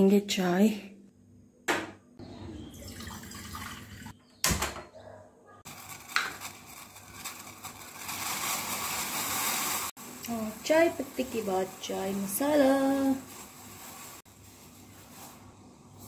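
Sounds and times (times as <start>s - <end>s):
water running: 2.7s - 4.2s.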